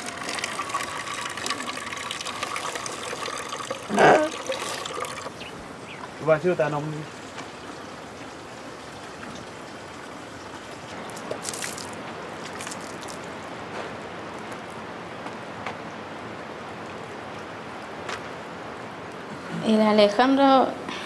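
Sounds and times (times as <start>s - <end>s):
steady hiss of water: 0.0s - 21.0s
hands splashing water: 11.0s - 13.3s.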